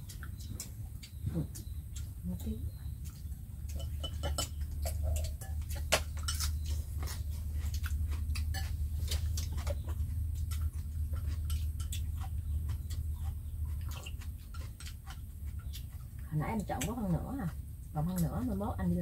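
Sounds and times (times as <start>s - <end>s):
crunchy chewing: 0.0s - 19.0s
steady low hum: 0.0s - 19.0s
chopsticks tapping ceramic bowls: 3.0s - 6.7s.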